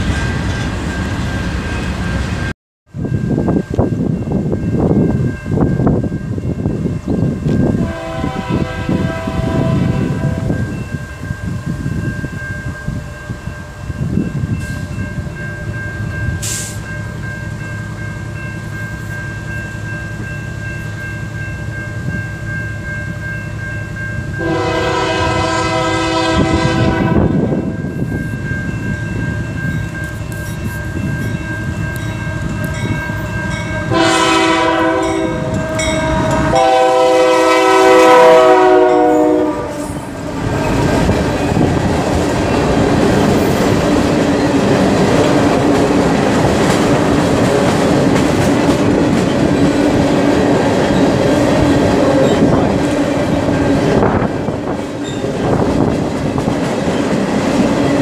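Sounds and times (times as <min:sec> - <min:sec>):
locomotive air horn blasts: 0:07.8 - 0:10.6, 0:24.4 - 0:27.6, 0:32.2 - 0:40.7
freight train wheels clicking: 0:39.8 - 0:58.0.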